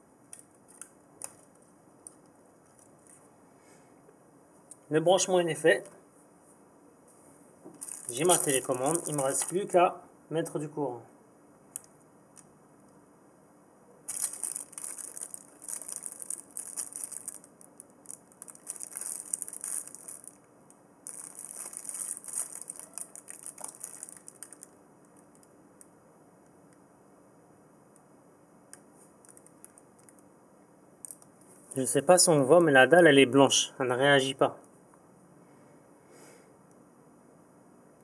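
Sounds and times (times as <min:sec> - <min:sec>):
cables and plugs rustling clicking: 0:00.3 - 0:03.2, 0:07.7 - 0:09.7, 0:14.1 - 0:25.5, 0:28.7 - 0:30.2.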